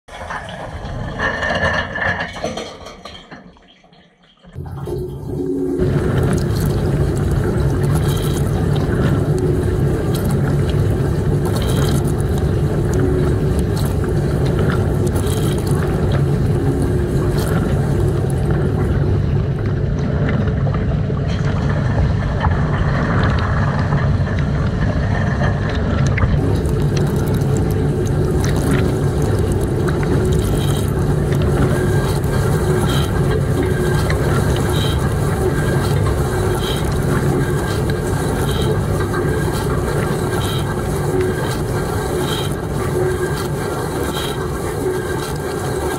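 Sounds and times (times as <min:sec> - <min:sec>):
dishwasher machine hum: 0:00.1 - 0:45.9
water spraying and splashing: 0:04.6 - 0:19.3, 0:26.2 - 0:45.9.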